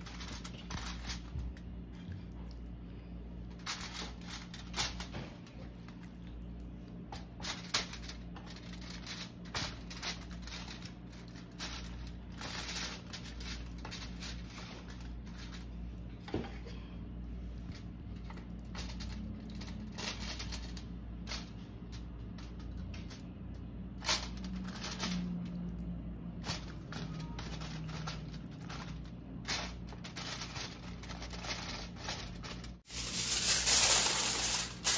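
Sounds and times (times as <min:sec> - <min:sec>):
steady low hum: 0:00.0 - 0:34.9
foil crinkling: 0:07.4 - 0:15.7, 0:26.4 - 0:34.9.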